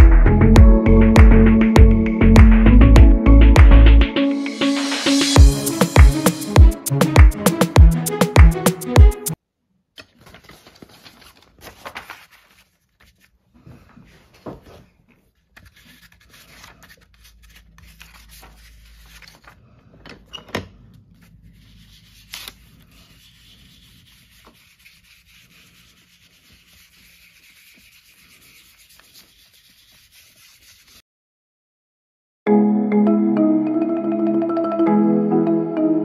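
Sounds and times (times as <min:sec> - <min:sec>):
rubbing and scrubbing on paper: 0:10.4 - 0:19.6, 0:21.1 - 0:31.0.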